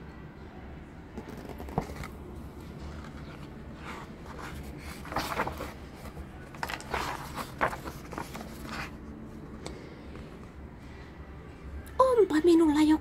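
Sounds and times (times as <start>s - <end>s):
book page rustling: 1.2s - 9.8s.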